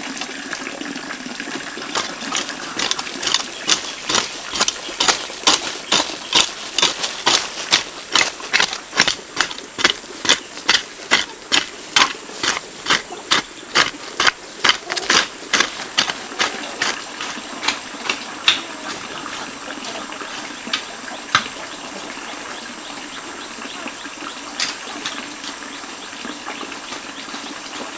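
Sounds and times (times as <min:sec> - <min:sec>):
hoe chopping dry soil: 0:01.9 - 0:18.7.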